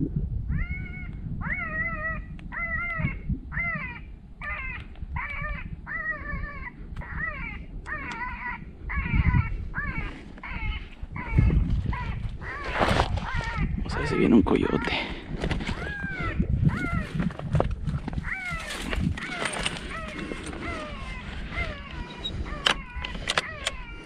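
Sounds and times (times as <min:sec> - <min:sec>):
high pitched animal cry from speaker: 0:00.5 - 0:15.1, 0:18.2 - 0:24.0.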